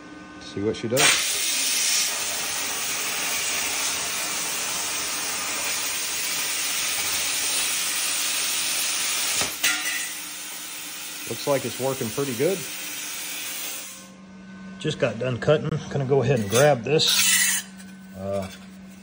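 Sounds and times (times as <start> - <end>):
plasma cutter click: 1.0 - 2.2, 9.3 - 10.2
plasma cutter hissing: 1.0 - 14.1.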